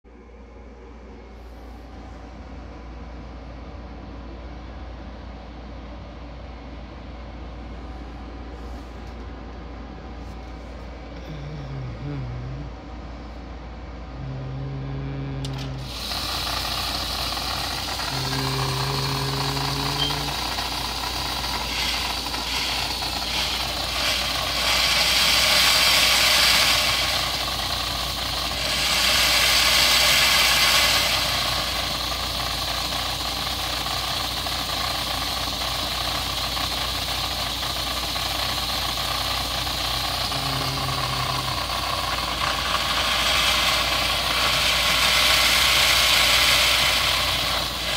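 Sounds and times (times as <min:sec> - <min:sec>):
short low hum: 0:00.1 - 0:35.2, 0:38.5 - 0:47.9
toy submarine motor whirring: 0:15.1 - 0:47.9.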